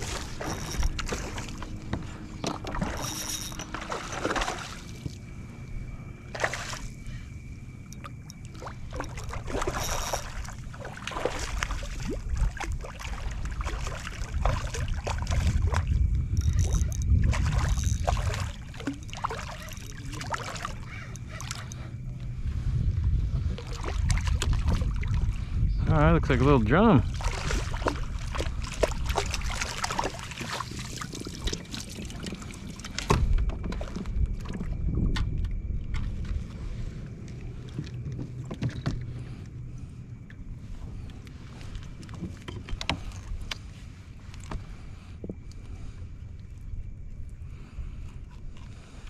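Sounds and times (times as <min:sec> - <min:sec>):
low rumble: 0:00.0 - 0:29.2
water sloshing against kayak hull: 0:00.0 - 0:49.0.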